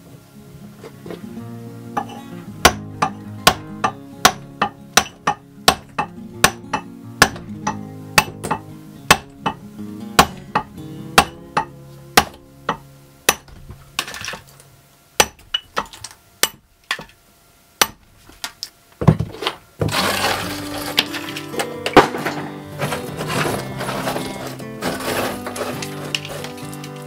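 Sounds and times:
hammer striking chisel on stone: 0:02.0 - 0:09.6, 0:10.2 - 0:14.4.

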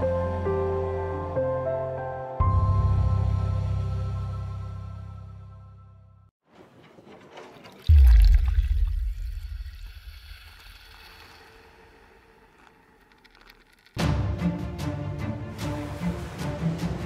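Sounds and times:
music: 0:00.0 - 0:06.3, 0:14.0 - 0:17.0
watery rushing hiss: 0:09.2 - 0:13.3.

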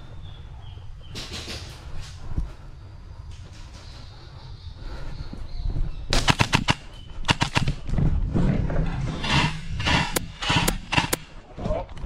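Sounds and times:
airsoft guns firing: 0:06.1 - 0:07.9, 0:09.2 - 0:11.4.

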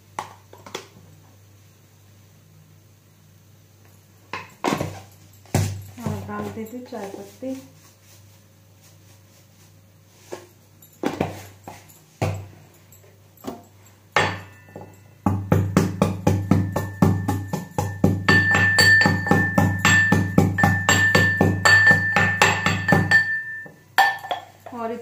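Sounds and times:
metal pestle pounding in mortar: 0:14.2 - 0:24.8.

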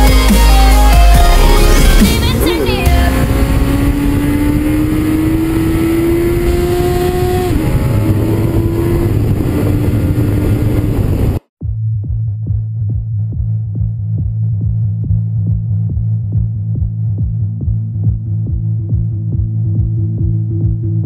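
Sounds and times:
motorcycle engine accelerating: 0:00.0 - 0:11.4
wind rush: 0:01.2 - 0:11.4.

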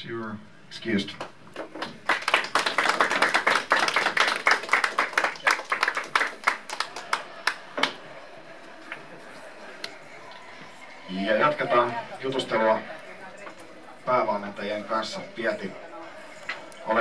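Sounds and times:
people clapping: 0:01.1 - 0:10.6.

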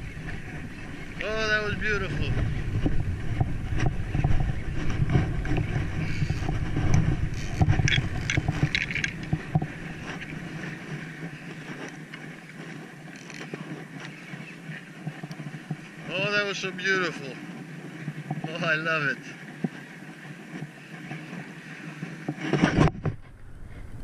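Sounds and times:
wind buffeting microphone: 0:00.0 - 0:24.0
fishing reel clicks and scrapes: 0:06.0 - 0:09.4, 0:13.1 - 0:13.5.

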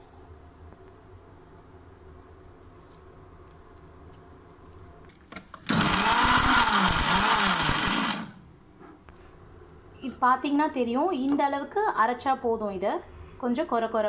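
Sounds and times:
mixer grinder grinding spices: 0:05.6 - 0:08.5.

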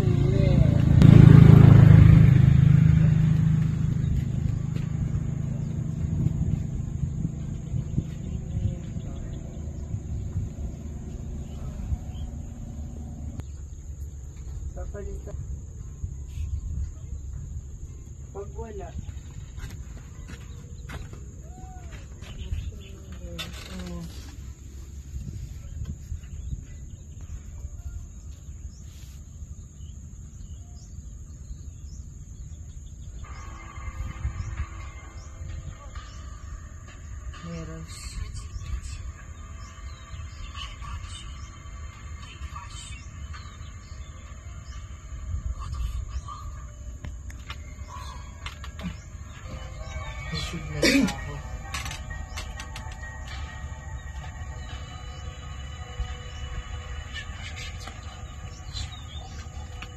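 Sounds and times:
motor vehicle passing: 0:00.0 - 0:15.4, 0:31.5 - 0:59.9
faint low rumble: 0:00.0 - 0:59.9
wind on microphone: 0:03.0 - 0:13.5, 0:21.4 - 0:28.9.

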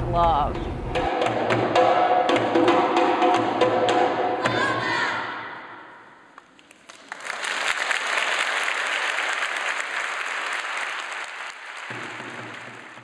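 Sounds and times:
audience applauding: 0:06.4 - 0:13.0.

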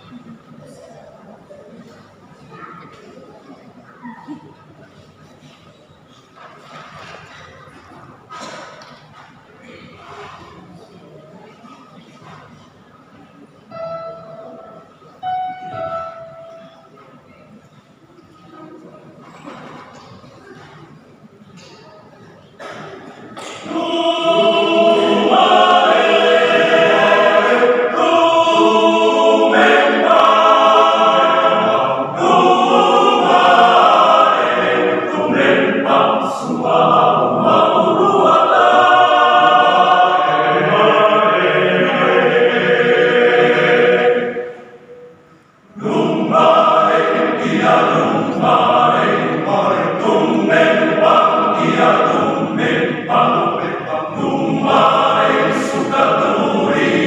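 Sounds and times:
men's choir singing in parts: 0:22.6 - 0:45.1, 0:45.7 - 0:57.0.

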